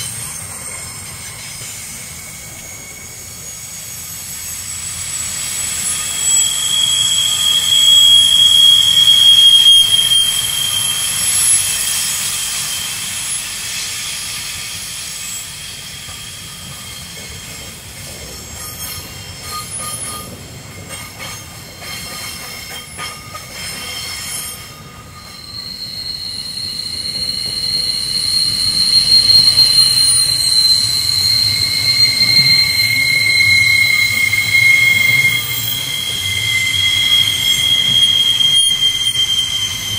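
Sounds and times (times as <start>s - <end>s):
train wheels squealing: 0.0s - 39.9s
train wagons clicking and rattling: 15.6s - 36.7s.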